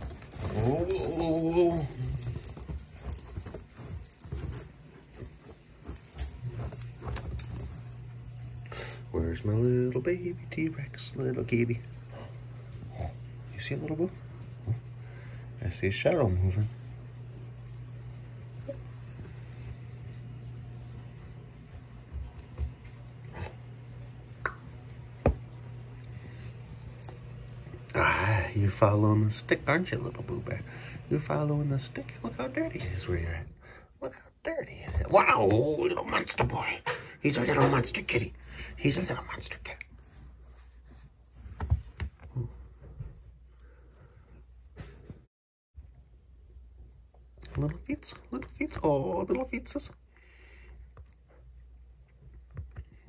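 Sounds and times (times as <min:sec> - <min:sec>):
metallic jingling: 0:00.0 - 0:10.6
low steady hum: 0:00.0 - 0:53.0.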